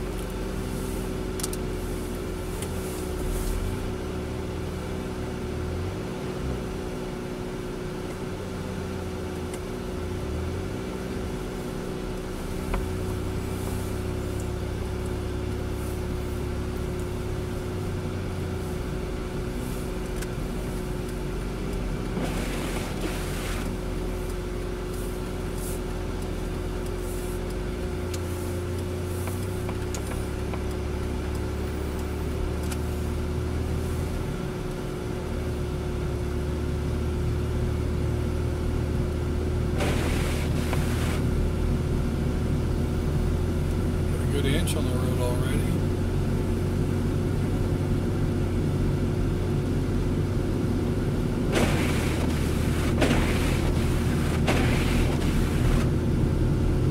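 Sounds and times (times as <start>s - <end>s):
car engine hum and road noise: 0.0s - 56.9s
click: 1.4s - 1.6s
brief hiss: 39.8s - 41.2s.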